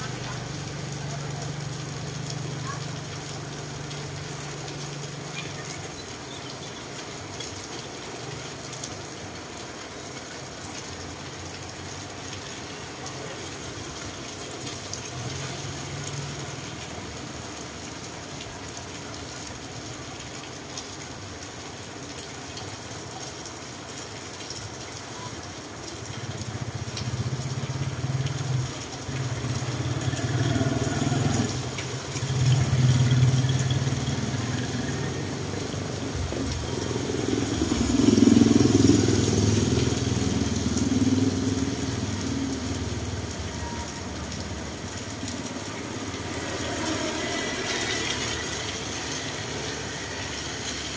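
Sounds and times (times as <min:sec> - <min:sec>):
rain on a wet street: 0:00.0 - 0:50.9
motorcycle engine approaching: 0:26.3 - 0:43.4.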